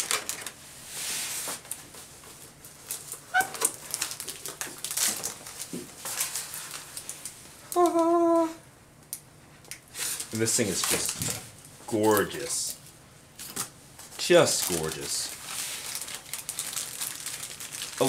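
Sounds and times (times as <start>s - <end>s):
styrofoam squeak: 3.3s - 3.8s.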